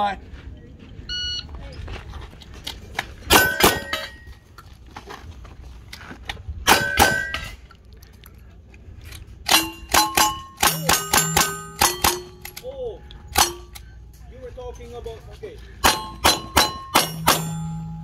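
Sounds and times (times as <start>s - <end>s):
steel target ringing: 3.3s - 4.3s, 6.7s - 7.6s, 9.5s - 12.6s, 13.3s - 14.0s, 15.8s - 18.0s.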